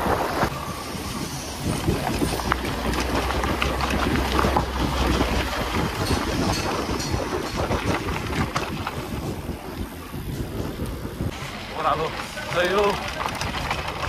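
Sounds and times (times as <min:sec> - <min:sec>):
wind buffeting microphone: 0:00.0 - 0:14.0
small clicks and rattles: 0:12.4 - 0:14.0.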